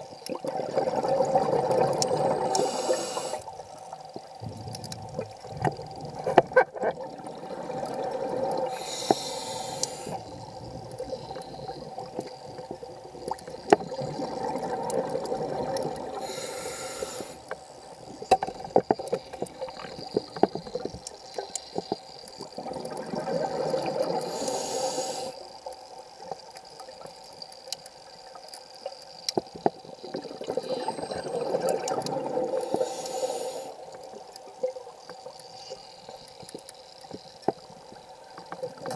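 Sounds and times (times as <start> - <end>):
exhaled bubbles underwater: 0.0 - 16.8, 22.3 - 24.4, 29.8 - 33.0
high regulator hiss: 2.5 - 3.5, 8.6 - 10.4, 16.2 - 17.6, 24.2 - 25.4, 32.6 - 33.8.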